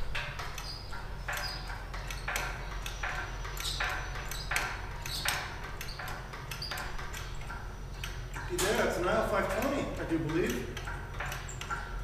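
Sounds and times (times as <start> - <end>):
hydraulic hand pump rasping: 0.0 - 12.0.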